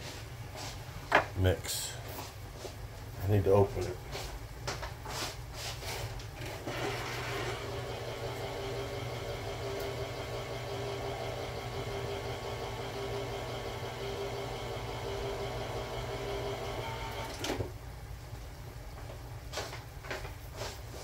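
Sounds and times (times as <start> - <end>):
electric can opener running: 6.4 - 17.7.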